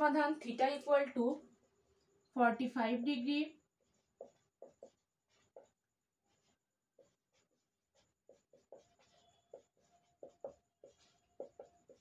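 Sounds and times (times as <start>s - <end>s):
marker squeaking on whiteboard: 3.8s - 12.0s.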